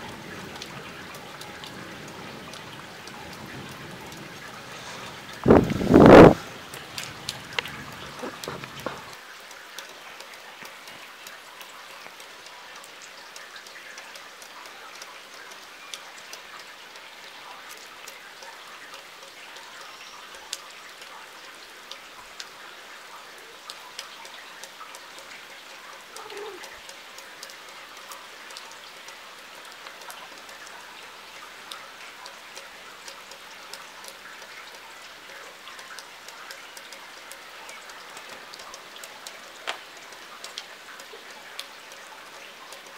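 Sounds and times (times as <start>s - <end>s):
low thunder rumble: 0.0s - 9.1s
raindrop ticks: 0.0s - 42.9s
steady rain: 0.0s - 42.9s.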